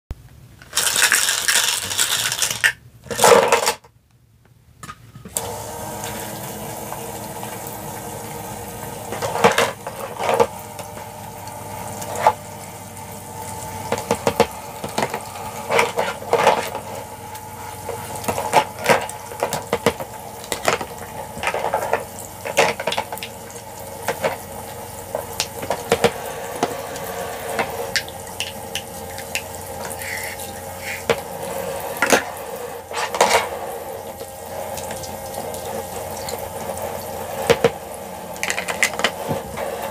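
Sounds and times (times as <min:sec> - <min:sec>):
plastic toy dishes clacking: 0:00.6 - 0:03.9
small pump humming: 0:05.3 - 0:39.9
water trickling from faucet: 0:34.0 - 0:37.2.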